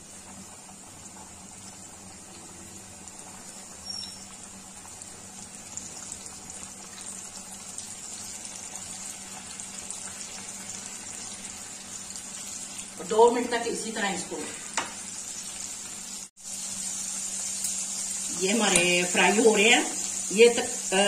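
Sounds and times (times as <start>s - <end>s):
chicken deep-frying in oil: 0.0s - 21.0s.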